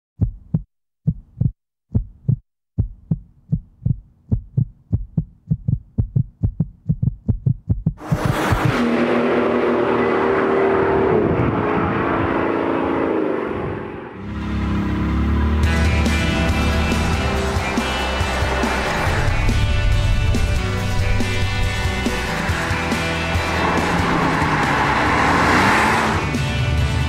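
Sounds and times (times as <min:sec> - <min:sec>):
heartbeat thuds: 0:00.2 - 0:08.7
car engine drone: 0:08.0 - 0:27.0
heavy wind noise: 0:10.8 - 0:12.5, 0:18.6 - 0:23.5.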